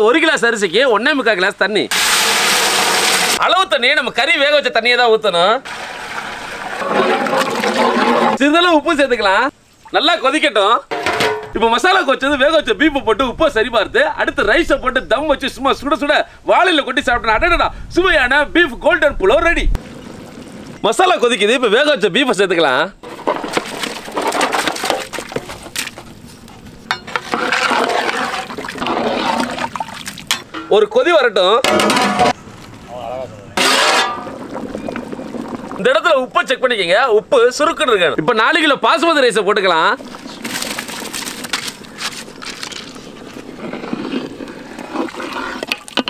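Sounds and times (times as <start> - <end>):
rice pouring into boiling stock: 1.9 - 3.4
stock boiling and bubbling: 1.9 - 3.4, 5.6 - 11.6, 19.2 - 31.0, 31.6 - 46.0
stirring and sloshing: 5.7 - 8.4, 23.0 - 30.8, 40.0 - 46.0.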